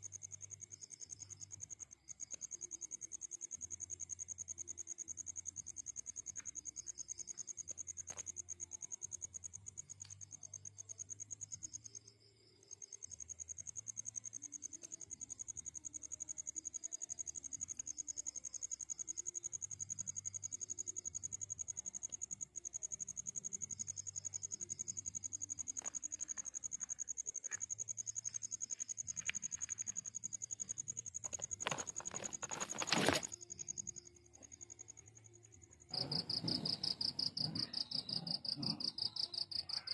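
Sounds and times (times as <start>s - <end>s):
crickets chirping: 0.0s - 39.9s
rustling scrapes: 31.3s - 33.4s.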